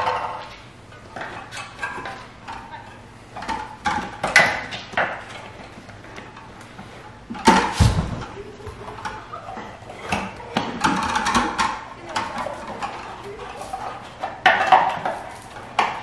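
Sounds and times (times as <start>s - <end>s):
tire bead heavy thump: 7.6s - 8.2s.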